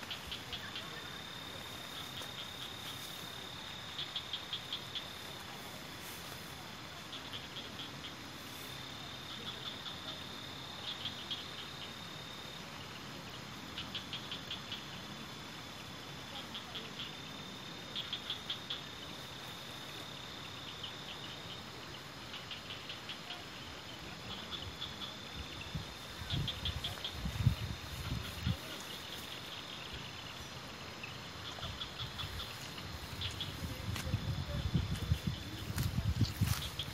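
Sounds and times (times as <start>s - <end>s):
insects chirping: 0.0s - 36.9s
steady high insect trill: 0.0s - 36.9s
soft even hiss: 4.9s - 9.5s.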